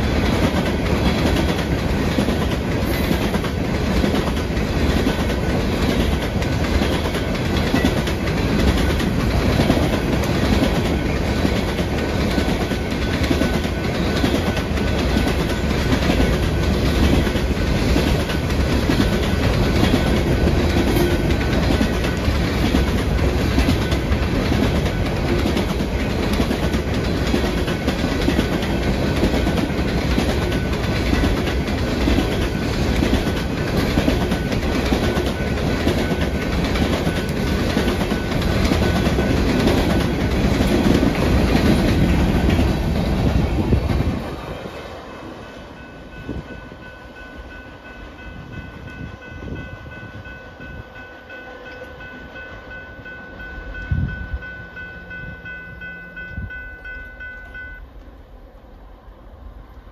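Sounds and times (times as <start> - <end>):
wheels clacking over rail joints: 0.0 - 44.8
steel wheels rumbling on rail: 0.0 - 57.8.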